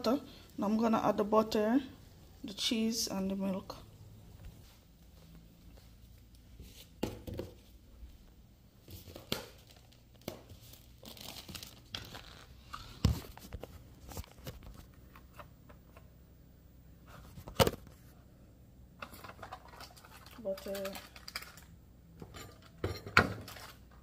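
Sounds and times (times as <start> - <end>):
food packaging tearing and crinkling: 9.3 - 13.5, 19.1 - 21.7, 23.4 - 24.0.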